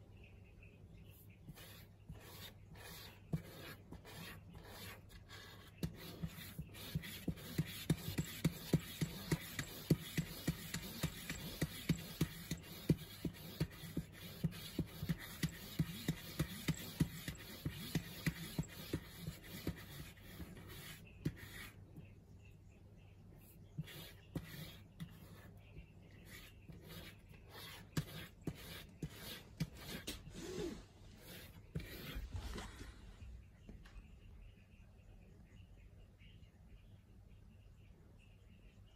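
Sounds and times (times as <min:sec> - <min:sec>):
cat claws scratching cardboard: 0:05.8 - 0:20.6.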